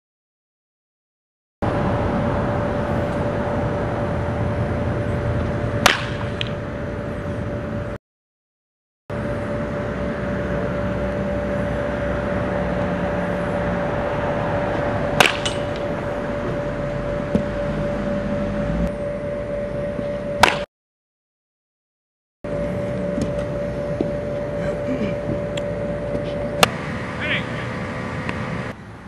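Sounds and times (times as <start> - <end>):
background hum: 1.6 - 8.0, 9.1 - 20.7, 22.5 - 29.0
baseball bat hitting ball: 5.7 - 6.6, 15.1 - 16.6, 20.4 - 20.7.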